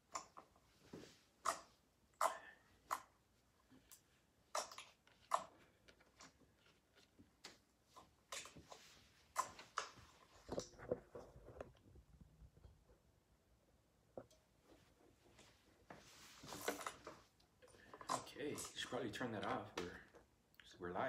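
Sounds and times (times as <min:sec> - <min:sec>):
bumps and rustling: 0:04.8 - 0:13.3.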